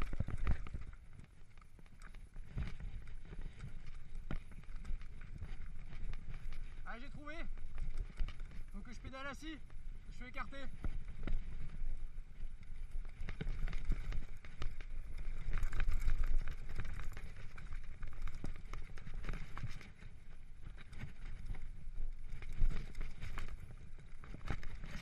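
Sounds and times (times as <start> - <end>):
bike clicks and rattles: 0.0 - 25.0
bike tyres on gravel: 0.0 - 25.0.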